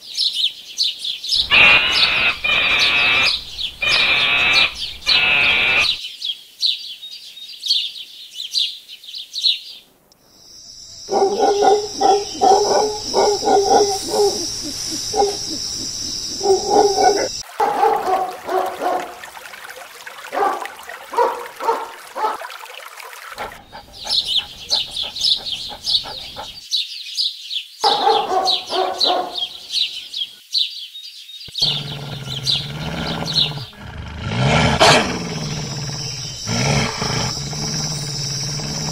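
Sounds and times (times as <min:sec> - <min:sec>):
high-pitched chirping: 0:01.4 - 0:06.0, 0:11.0 - 0:17.4
dog barking: 0:11.1 - 0:19.2, 0:20.3 - 0:22.5, 0:23.4 - 0:26.6, 0:27.8 - 0:29.6, 0:34.4 - 0:38.0.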